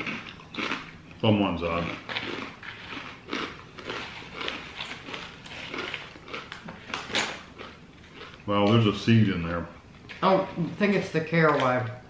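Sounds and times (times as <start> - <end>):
crisps crunching: 0.0 - 8.9.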